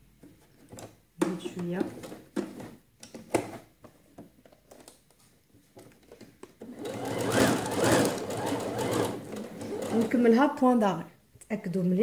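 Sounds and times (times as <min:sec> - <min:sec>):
sewing machine running: 0:06.6 - 0:10.2.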